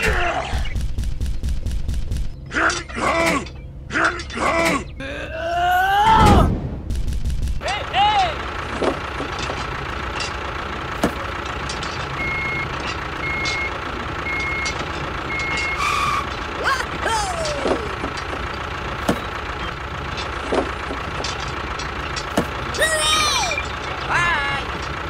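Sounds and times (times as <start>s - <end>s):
engine-like hum: 0.0s - 25.0s
reversing alarm beeps: 12.2s - 16.3s
short sliding chirps: 15.4s - 16.3s.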